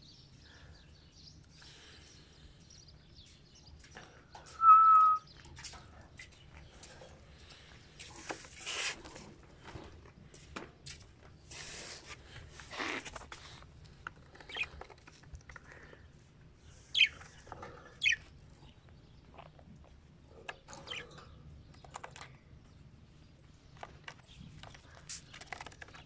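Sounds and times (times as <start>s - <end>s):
budgerigars squawking: 16.9s - 17.3s, 18.0s - 18.2s
budgerigars chirping: 16.9s - 18.2s.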